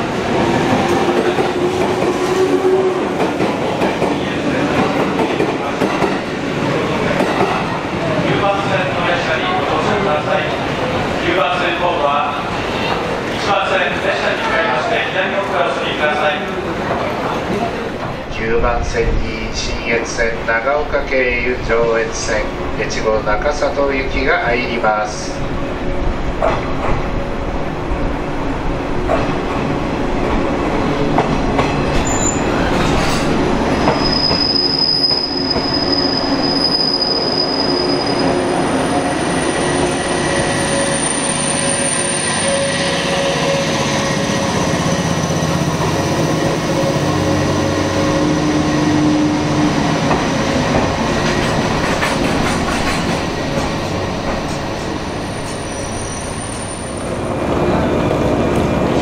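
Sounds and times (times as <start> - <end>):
train rumble: 0.0 - 41.8, 42.4 - 59.0
train wheels squealing: 31.9 - 32.9, 33.8 - 45.7, 55.2 - 57.2.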